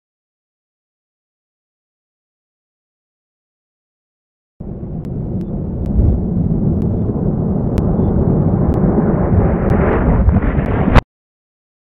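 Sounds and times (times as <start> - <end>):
deep continuous rumble: 4.6 - 11.0.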